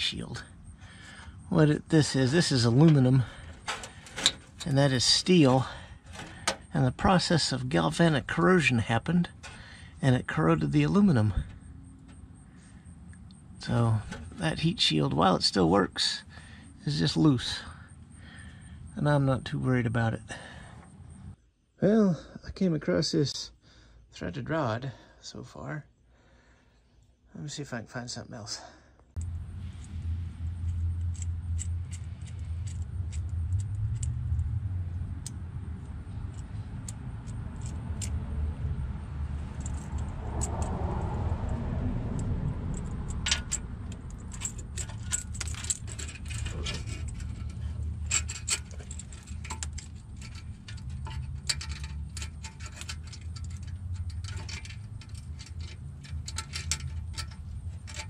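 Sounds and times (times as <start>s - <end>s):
metal hose clamp clinking: 0.0s - 12.2s, 13.6s - 15.2s, 29.2s - 34.5s, 35.2s - 38.2s, 39.5s - 40.7s, 42.2s - 58.0s
steady low rumble: 0.0s - 21.4s, 29.2s - 58.0s.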